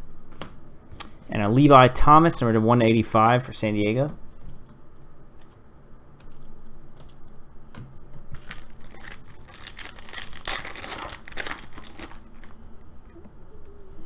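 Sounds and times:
foil wrapper tearing and crinkling: 0:08.4 - 0:12.6.

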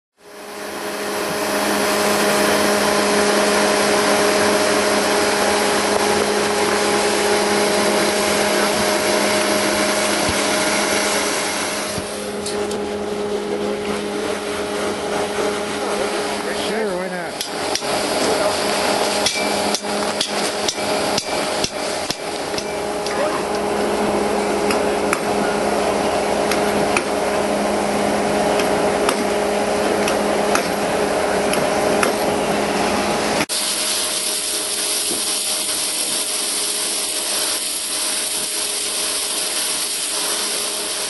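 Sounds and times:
motor hum: 0:00.2 - 0:41.0
rushing blast of air and spray: 0:00.3 - 0:13.4, 0:32.2 - 0:41.0.

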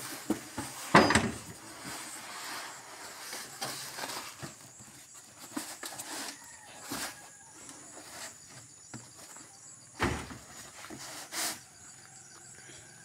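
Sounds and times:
polystyrene sheets scraping: 0:00.0 - 0:07.3, 0:10.5 - 0:11.8.

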